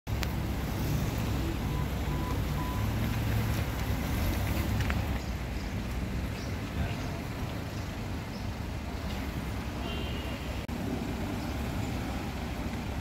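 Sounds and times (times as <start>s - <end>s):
road noise: 0.0s - 13.0s
car engine rumble: 0.1s - 13.0s.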